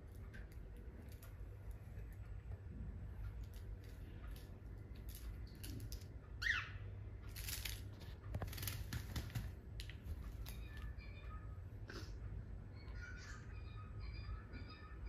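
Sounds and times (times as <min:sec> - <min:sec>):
bird chirp: 0:06.3 - 0:07.0, 0:12.6 - 0:15.0
feather rustling and wing flapping: 0:07.4 - 0:09.6.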